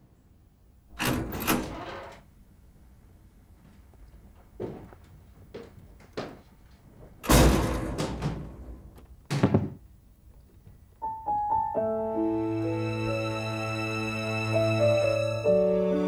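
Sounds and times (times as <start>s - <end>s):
door knocks and thuds: 7.3s - 9.8s
soft piano music: 11.0s - 16.0s.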